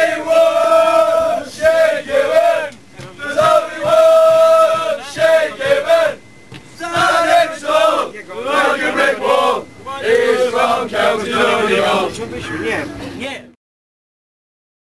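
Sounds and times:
crowd singing a football chant: 0.0 - 12.8.

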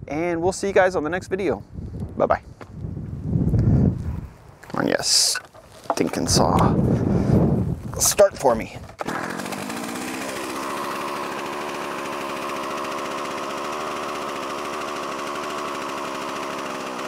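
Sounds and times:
chainsaw starting and idling: 8.5 - 17.0.

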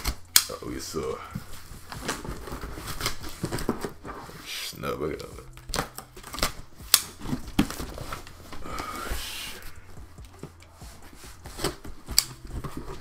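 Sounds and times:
cardboard box scraping and rustling: 1.4 - 4.6, 7.1 - 8.7, 9.8 - 13.0.

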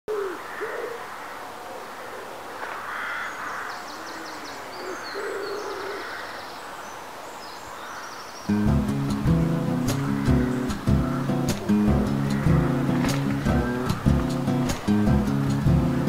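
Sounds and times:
low hooting bird calls: 0.1 - 6.5, 7.7 - 16.0
high twittering birdsong: 2.9 - 16.0
steady background rush: 8.6 - 16.0.

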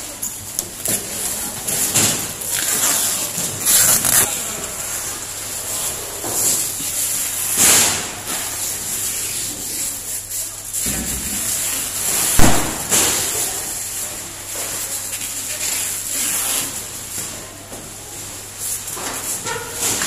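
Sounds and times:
steady room hiss and hum: 0.0 - 20.0
cardboard and plastic rustling: 0.7 - 4.8.

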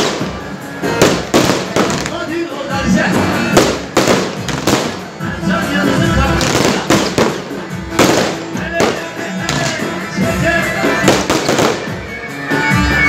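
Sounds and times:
fireworks bursting: 0.0 - 12.2
music playing: 0.0 - 13.0.

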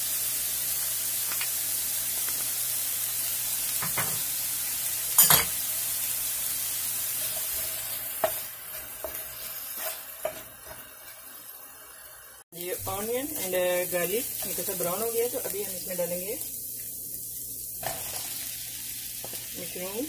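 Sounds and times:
onion and garlic sizzling in oil: 0.0 - 20.0
wooden spatula scraping pan: 7.2 - 11.2.

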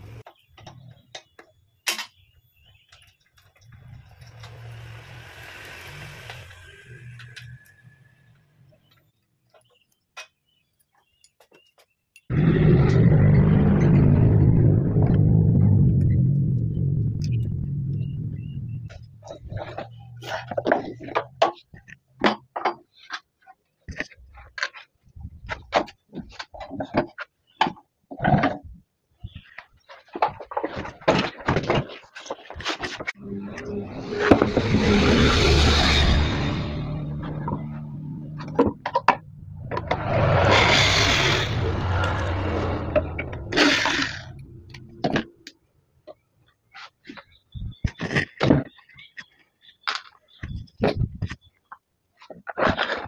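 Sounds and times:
knocks and clunks of wood and metal: 18.8 - 33.2, 46.8 - 51.6.

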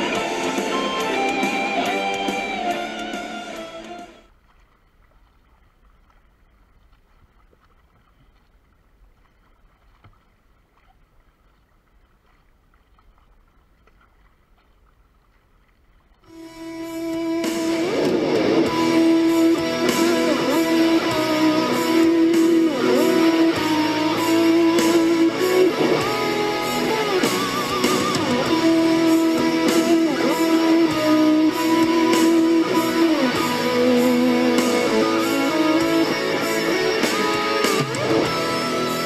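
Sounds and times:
electric guitar music with beat: 0.0 - 4.3, 16.3 - 39.0.

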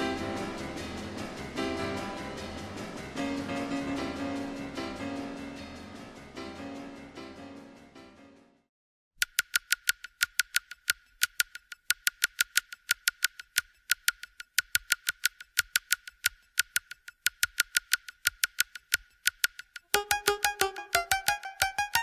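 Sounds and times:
rapid high-pitched clicking: 9.2 - 22.0.

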